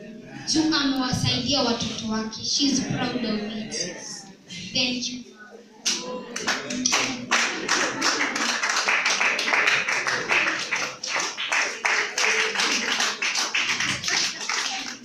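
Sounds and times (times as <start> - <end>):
audience clapping: 5.8 - 15.0.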